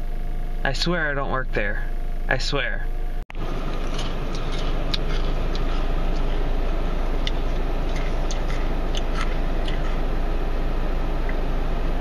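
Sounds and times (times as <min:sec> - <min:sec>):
car cabin hum: 0:00.0 - 0:12.0
cracker being chewed: 0:03.4 - 0:10.1.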